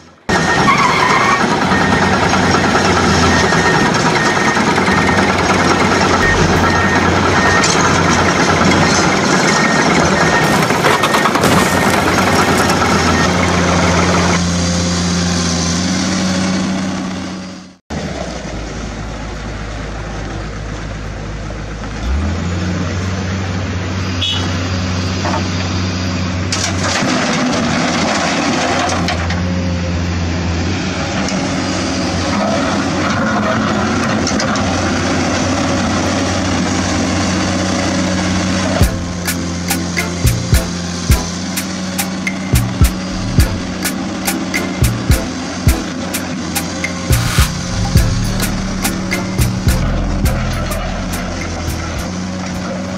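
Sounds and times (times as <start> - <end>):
excavator diesel engine running: 0.0 - 26.5, 27.4 - 52.9
engine low hum: 2.7 - 9.1, 40.2 - 45.9, 46.5 - 52.9.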